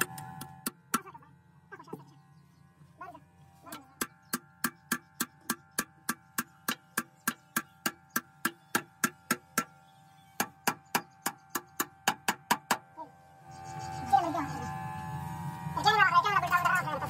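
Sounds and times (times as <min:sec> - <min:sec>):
hammer tapping on steel: 0:03.7 - 0:09.7.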